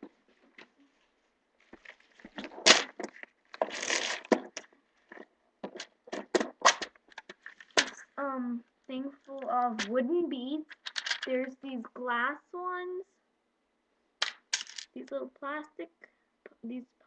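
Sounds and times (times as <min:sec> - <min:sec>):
scraping: 0:00.0 - 0:08.1.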